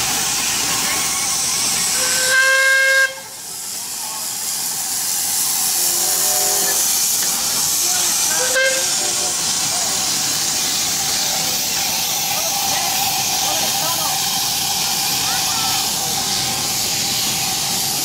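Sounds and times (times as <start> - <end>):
steam locomotives hissing: 0.0 - 18.0
steam whistle blast: 1.9 - 3.4, 5.8 - 6.8, 8.3 - 9.4.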